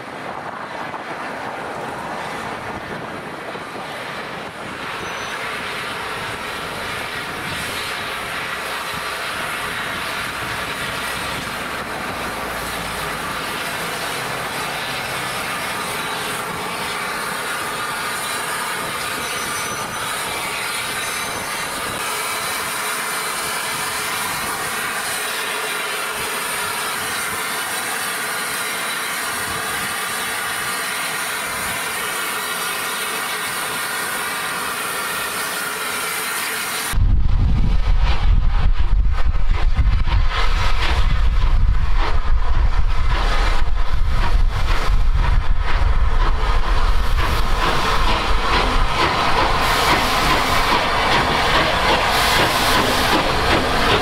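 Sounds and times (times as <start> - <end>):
train clattering over track: 0.0 - 54.0
train wheels squealing: 4.7 - 11.9, 12.6 - 37.0.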